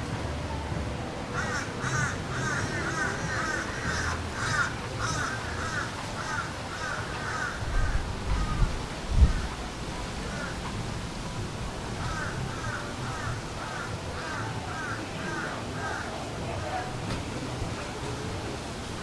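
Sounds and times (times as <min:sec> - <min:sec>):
bird harsh caw-like calls: 0:01.3 - 0:09.5, 0:12.0 - 0:16.1.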